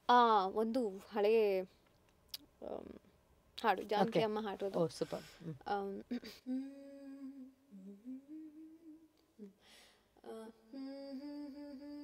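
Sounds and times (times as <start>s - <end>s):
woman humming a slow melody: 6.1s - 9.6s, 10.3s - 12.0s
woman breathing in: 9.6s - 10.2s.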